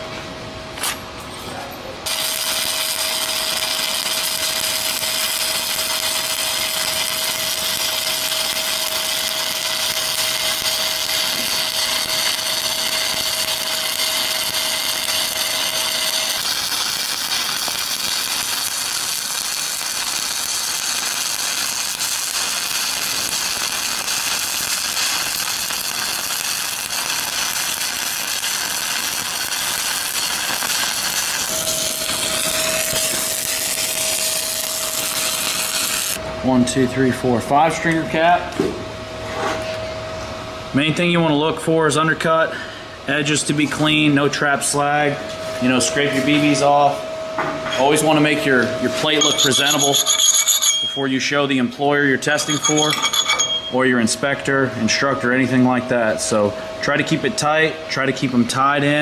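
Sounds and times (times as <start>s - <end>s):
welding arc crackling: 2.0s - 38.1s, 47.9s - 59.0s.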